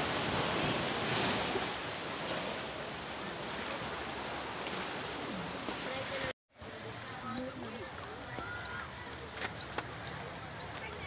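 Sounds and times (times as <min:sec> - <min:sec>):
sea surf washing against rocks: 0:00.0 - 0:07.0.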